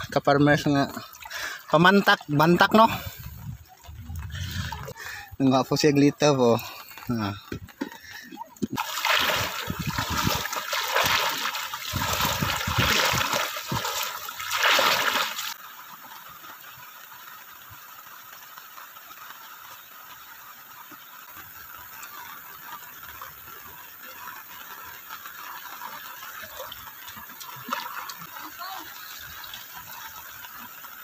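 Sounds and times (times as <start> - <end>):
heavy rain on water: 0.0 - 31.0
legs wading through water: 6.6 - 17.4.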